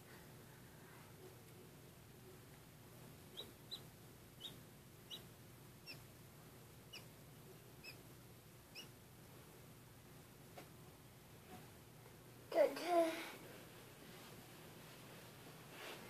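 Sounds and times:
chick peeping: 0:03.3 - 0:06.1, 0:06.9 - 0:07.1, 0:07.8 - 0:08.0, 0:08.7 - 0:08.9.

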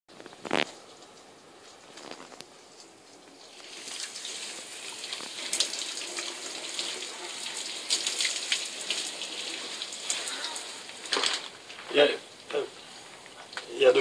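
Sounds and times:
shower water spraying: 0:02.6 - 0:12.6.

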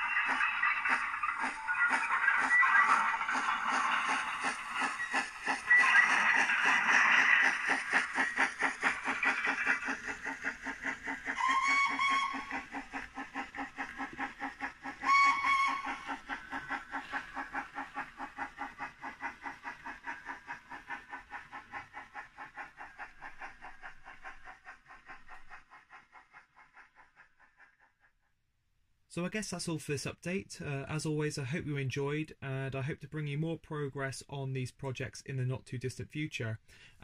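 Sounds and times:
model steam engine chuffing: 0:00.0 - 0:28.3, 0:29.2 - 0:37.0
train whistle blasts: 0:11.4 - 0:12.5, 0:15.1 - 0:16.0.

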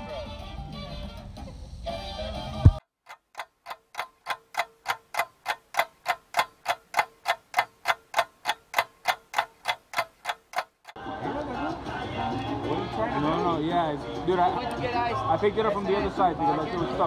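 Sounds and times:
clock ticking: 0:03.0 - 0:11.0.

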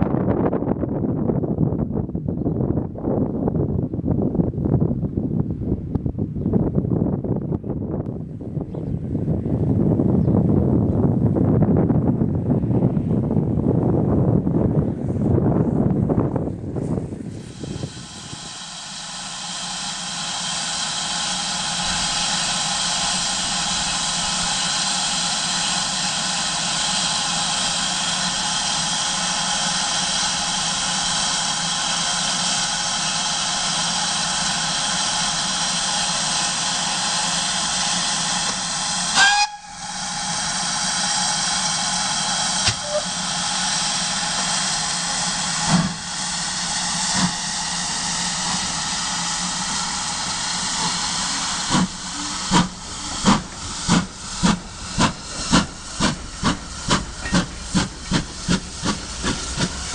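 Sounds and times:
steam locomotive hissing: 0:15.5 - 0:59.9.

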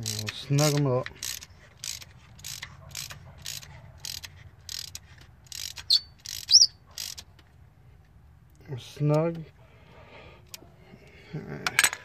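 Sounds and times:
socket ratchet clicking: 0:00.0 - 0:07.4
bird chirping: 0:05.8 - 0:06.8.

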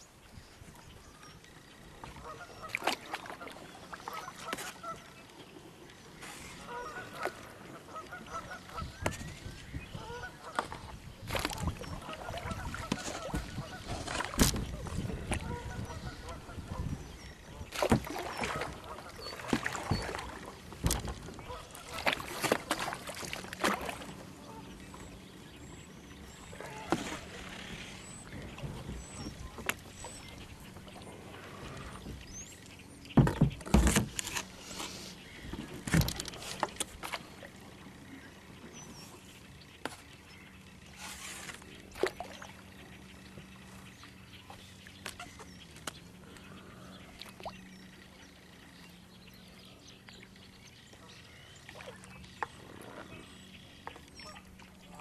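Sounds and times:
paddle strokes and splashes: 0:00.4 - 0:55.0
waterfowl calling: 0:02.0 - 0:05.2, 0:06.3 - 0:09.2, 0:09.8 - 0:32.6, 0:51.0 - 0:55.0
plants brushing hull: 0:33.7 - 0:37.2, 0:40.9 - 0:42.1.

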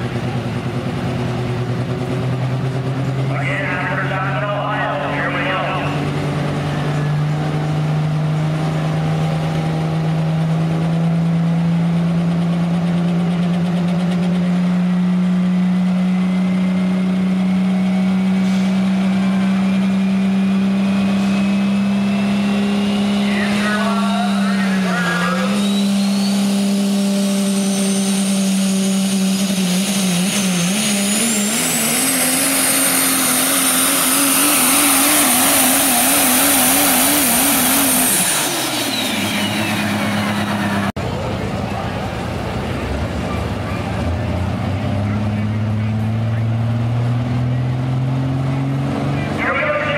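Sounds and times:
diesel engine running hard: 0:00.0 - 0:49.9
turbo whine: 0:16.2 - 0:40.9.

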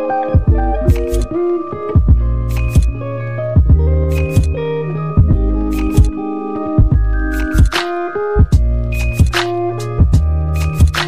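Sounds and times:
held chords: 0:00.0 - 0:11.0
steady drum beat: 0:00.4 - 0:01.2, 0:02.0 - 0:02.9, 0:08.4 - 0:11.0.

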